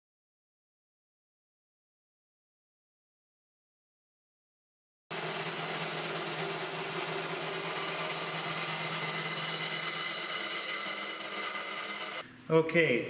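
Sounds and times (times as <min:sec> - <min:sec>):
machine humming steadily: 0:05.1 - 0:12.5.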